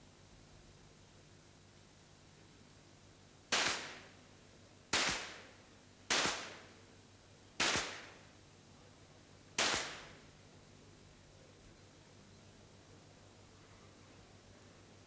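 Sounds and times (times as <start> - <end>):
pistol shots: 3.5 - 4.1, 4.9 - 5.5, 6.1 - 6.6, 7.6 - 8.2, 9.6 - 10.2.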